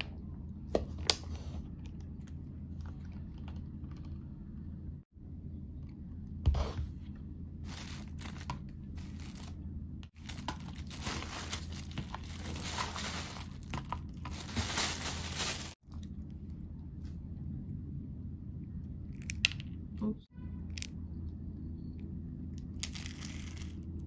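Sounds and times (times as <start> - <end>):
plastic bag crinkling: 7.6 - 9.6, 10.2 - 15.8.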